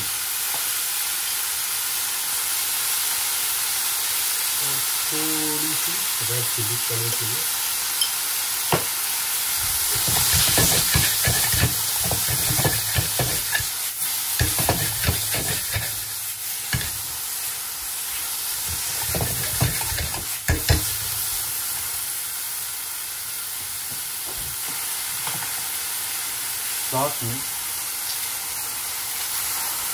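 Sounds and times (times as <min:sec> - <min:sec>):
vegetables sizzling in frying pan: 0:00.0 - 0:29.9
spatula stirring and scraping: 0:09.8 - 0:17.1, 0:18.6 - 0:21.3
spatula knocking against pan: 0:09.9 - 0:13.6, 0:14.4 - 0:16.0, 0:18.7 - 0:21.0.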